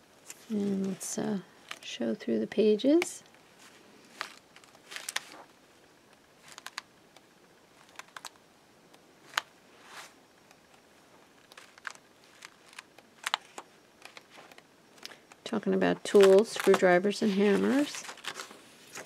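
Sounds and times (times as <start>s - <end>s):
book pages turning: 3.6s - 5.5s, 6.4s - 6.9s, 9.2s - 15.5s, 16.1s - 19.0s.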